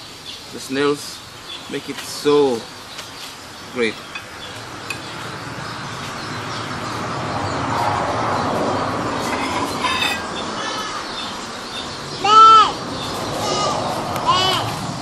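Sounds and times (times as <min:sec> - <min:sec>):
passing vehicle rumbling: 0:03.9 - 0:15.0.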